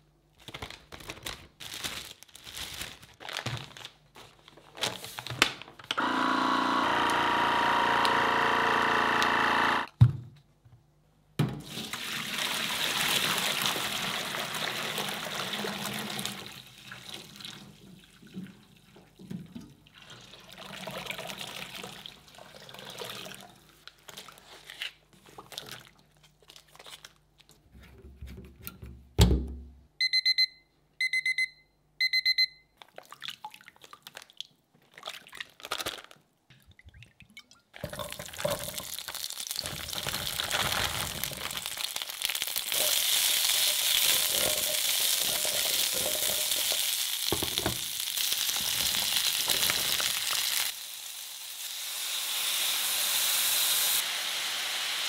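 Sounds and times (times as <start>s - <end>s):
plastic bags crinkling: 0.4s - 5.9s, 23.9s - 27.6s, 33.9s - 36.3s, 38.0s - 50.7s
loud steady whirr: 6.0s - 9.9s
water pouring into metal tank: 11.6s - 19.0s, 19.8s - 23.6s, 36.8s - 50.4s.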